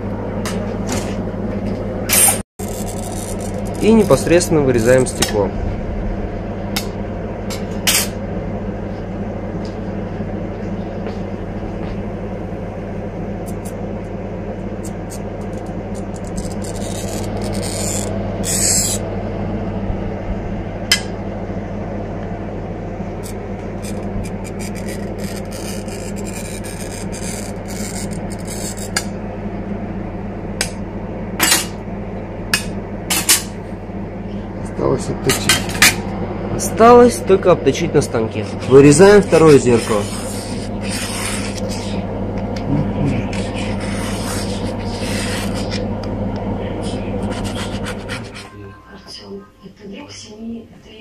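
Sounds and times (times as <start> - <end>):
steady low hum: 0.0 - 51.0
glass cutter scoring glass: 2.2 - 5.0, 14.8 - 19.0, 23.2 - 29.1, 39.3 - 42.0, 43.2 - 45.8.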